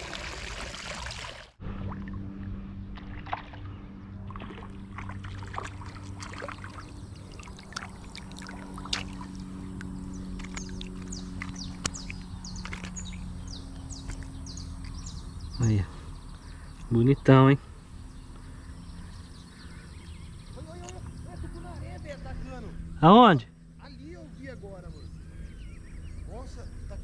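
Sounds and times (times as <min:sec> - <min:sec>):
boat motor humming: 0:01.6 - 0:27.0
bird chirps: 0:06.6 - 0:27.0.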